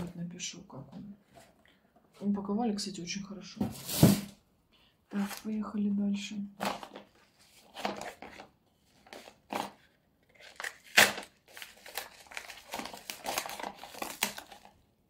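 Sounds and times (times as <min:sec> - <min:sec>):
packaging rustling and crinkling: 0:06.6 - 0:14.8.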